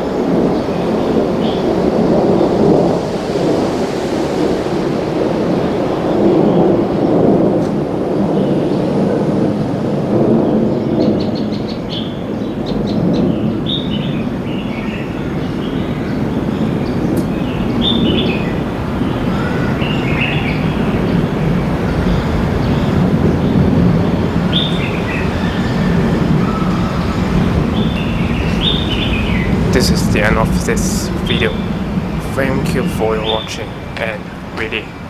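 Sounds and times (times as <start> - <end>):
birds chirping: 10.9 - 35.0
low rumble: 25.3 - 34.8.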